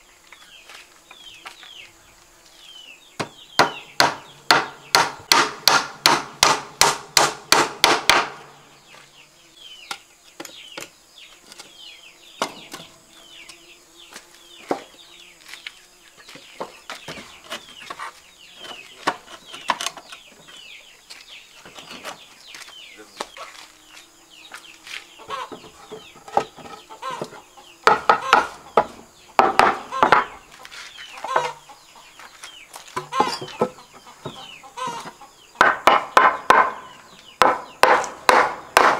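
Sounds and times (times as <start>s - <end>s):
wooden boards knocking: 3.2s - 8.4s, 25.3s - 30.4s, 35.6s - 38.9s
hammer driving nail into wood: 3.6s - 8.4s, 37.4s - 38.9s
chickens clucking: 16.0s - 38.7s.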